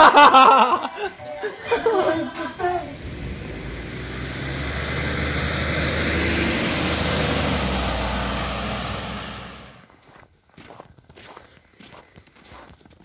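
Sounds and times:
fire engine driving past: 0.0s - 9.9s.

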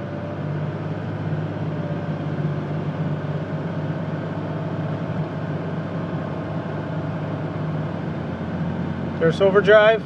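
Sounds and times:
diesel truck engine accelerating: 0.0s - 10.0s.

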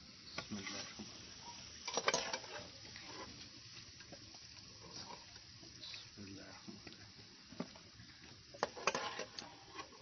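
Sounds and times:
chips sizzling in hot oil: 0.0s - 10.0s
metal spoon clinking in pot: 1.9s - 2.6s.

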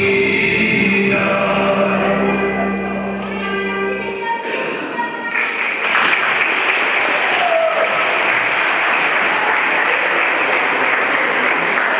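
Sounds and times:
dance music: 0.0s - 4.7s
audience applause: 5.3s - 11.9s.

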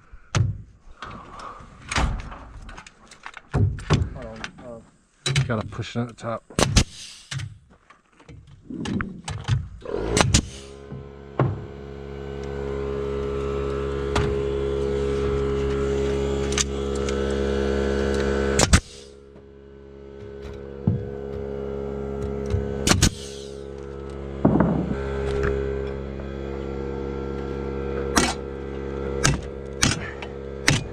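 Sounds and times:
nail gun firing: 6.6s - 7.4s, 10.1s - 10.7s, 18.6s - 19.1s, 22.9s - 23.4s, 24.4s - 25.4s, 28.2s - 28.4s, 29.2s - 30.9s
air compressor motor humming: 9.8s - 30.9s.

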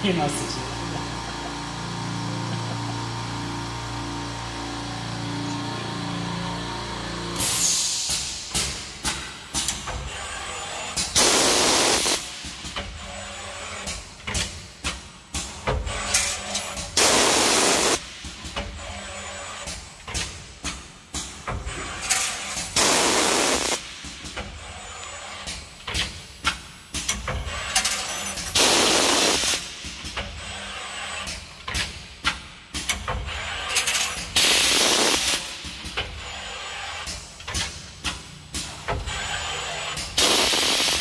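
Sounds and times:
compressed air exhaust hiss: 7.4s - 8.9s, 11.2s - 12.7s, 17.0s - 18.3s, 22.6s - 24.1s, 28.6s - 29.9s, 34.4s - 35.7s, 40.2s - 41.0s.

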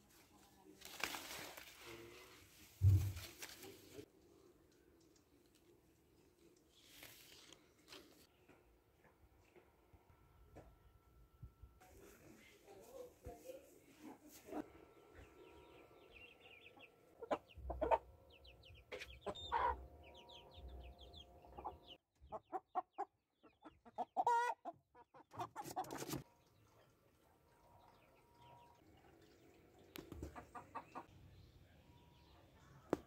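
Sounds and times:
hens clucking: 16.8s - 19.8s, 21.4s - 26.2s, 30.0s - 31.1s.

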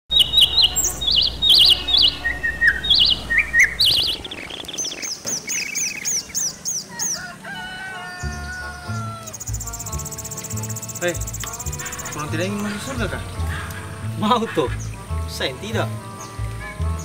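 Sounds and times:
bird whistles: 0.1s - 6.5s
birds chirping and singing: 0.1s - 17.0s.

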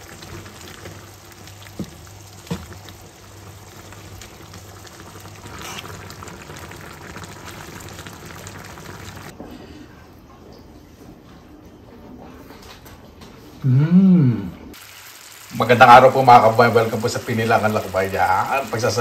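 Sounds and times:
sauce simmering and bubbling: 0.0s - 9.4s.

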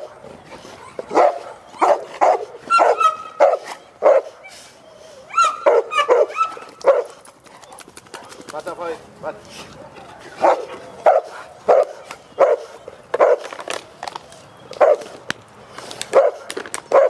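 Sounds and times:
dogs barking: 0.0s - 4.6s, 5.3s - 8.4s, 9.9s - 13.8s, 14.7s - 15.2s, 16.0s - 17.0s
dog yelping: 0.8s - 4.5s, 5.3s - 7.8s.

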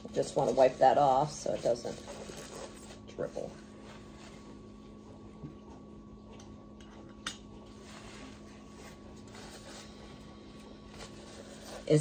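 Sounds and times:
steady low hum: 0.0s - 12.0s
paper towel rustling on plastic: 0.1s - 4.6s, 7.7s - 10.2s, 10.8s - 12.0s.

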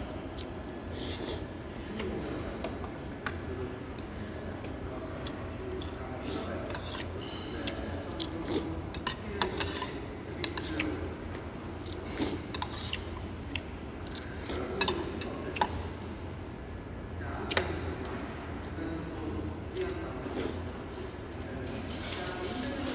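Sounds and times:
steady low hum: 0.0s - 22.9s
sipping and chewing: 0.2s - 2.6s, 3.8s - 15.9s.

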